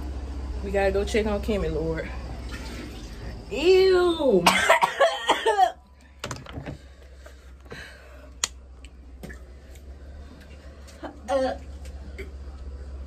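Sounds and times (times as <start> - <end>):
person coughing harshly: 4.4 - 5.8.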